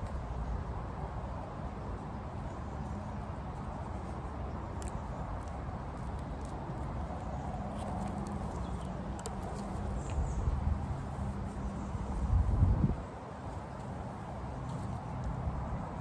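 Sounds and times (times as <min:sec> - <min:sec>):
nettle stems rustling: 0:03.5 - 0:12.6.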